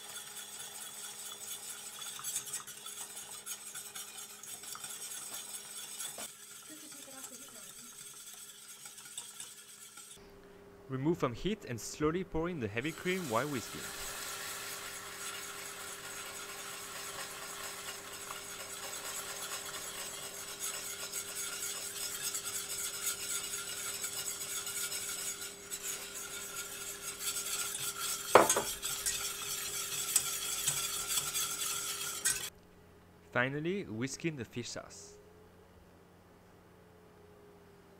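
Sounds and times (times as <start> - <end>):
caramel sizzling: 0.0 - 10.2, 12.8 - 32.5
whisk clinking against pot: 0.0 - 10.2, 12.9 - 32.5
whisk scraping a pot: 0.0 - 10.2, 12.6 - 32.6.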